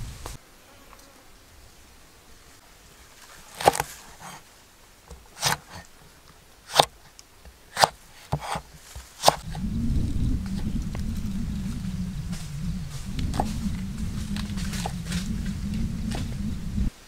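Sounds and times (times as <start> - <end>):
cleaver chopping on wooden board: 7.8 - 8.6, 9.2 - 9.4.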